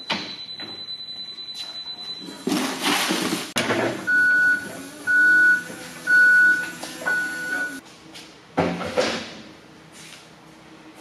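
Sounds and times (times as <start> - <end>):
forklift backup alarm beeping: 0.0 - 2.6, 4.0 - 7.8.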